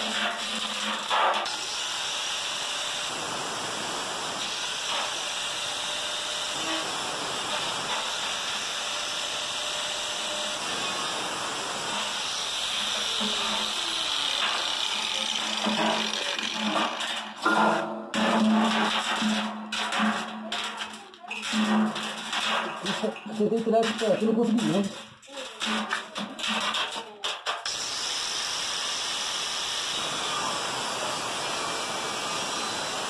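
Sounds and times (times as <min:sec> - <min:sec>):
angle grinder cutting steel: 0:00.0 - 0:20.0, 0:21.4 - 0:33.0.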